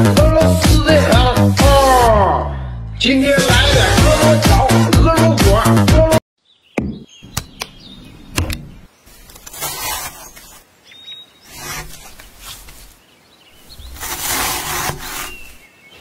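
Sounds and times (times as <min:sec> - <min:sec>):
knife sawing through pineapple: 0:09.5 - 0:10.6, 0:11.5 - 0:12.8, 0:13.8 - 0:15.6.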